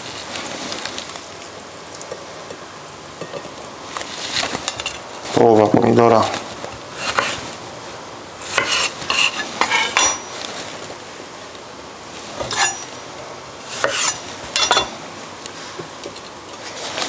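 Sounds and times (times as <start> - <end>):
knife slicing on wooden board: 7.0 - 7.4, 8.4 - 10.1, 13.7 - 14.2.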